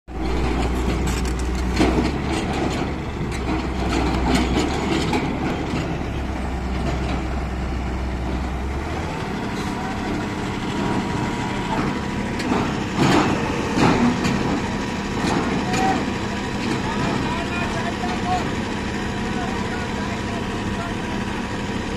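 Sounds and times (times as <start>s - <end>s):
heavy machinery engine running: 0.1s - 21.9s
knocks and clanks: 0.2s - 7.4s, 10.7s - 18.2s.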